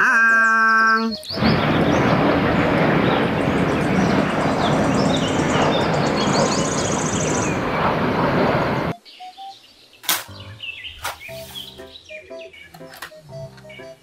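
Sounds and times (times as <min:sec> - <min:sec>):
birds chirping: 0:00.0 - 0:14.0
jet airliner flying low: 0:01.2 - 0:09.0.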